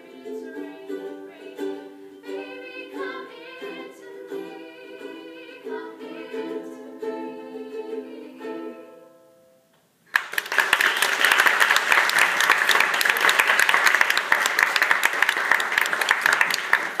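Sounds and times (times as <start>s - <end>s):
ukulele chord ringing: 0.0s - 9.7s
audience applause: 10.1s - 17.0s.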